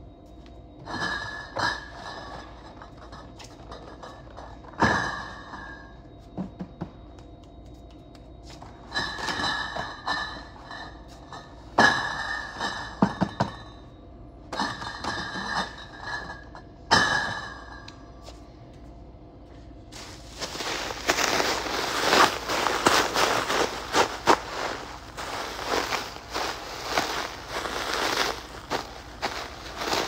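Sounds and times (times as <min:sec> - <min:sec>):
glass bottles clinking: 0:00.8 - 0:05.8, 0:08.9 - 0:13.8, 0:14.5 - 0:17.9
plastic stretch wrap crinkling: 0:20.1 - 0:30.0.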